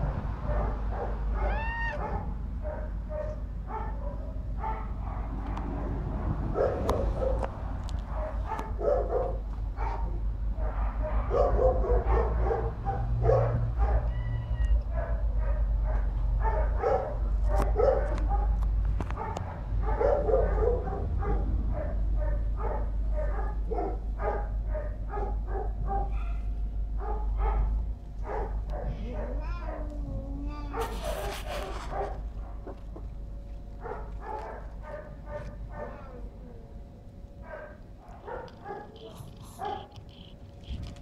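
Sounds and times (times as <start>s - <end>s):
dogs barking: 0.0s - 30.0s, 30.7s - 36.3s, 37.3s - 40.3s
low rumble: 18.2s - 23.2s.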